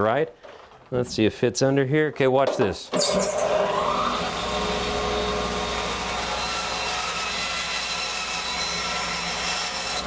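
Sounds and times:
bandsaw cutting wood: 0:03.0 - 0:10.0.

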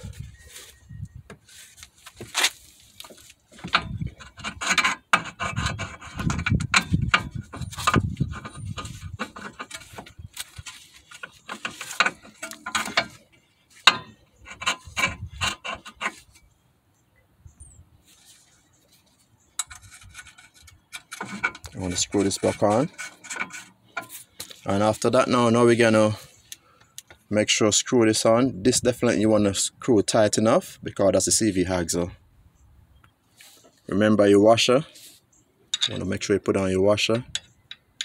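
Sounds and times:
metal parts clinking and scraping: 0:02.7 - 0:16.5, 0:18.1 - 0:25.0, 0:35.7 - 0:36.2.

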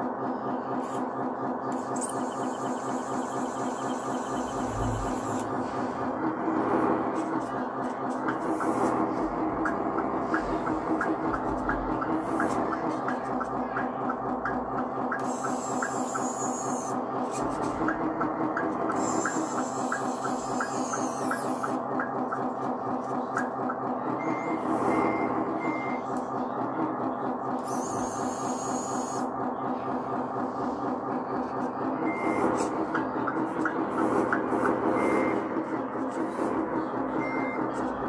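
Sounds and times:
diesel engine sound: 0:00.0 - 0:38.0
high electric drive whine: 0:01.7 - 0:21.8
reversing beeps: 0:02.0 - 0:05.4, 0:24.2 - 0:26.1, 0:32.0 - 0:32.6, 0:35.0 - 0:35.5, 0:37.2 - 0:37.7.

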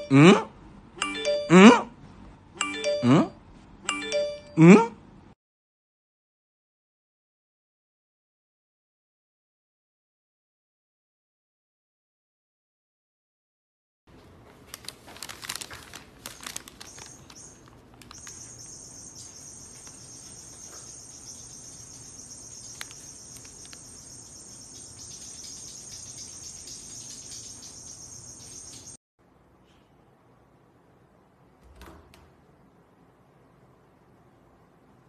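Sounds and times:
crackling and clicking: 0:14.7 - 0:18.8, 0:21.2 - 0:24.4
high-pitched insect chorus: 0:18.1 - 0:29.0.

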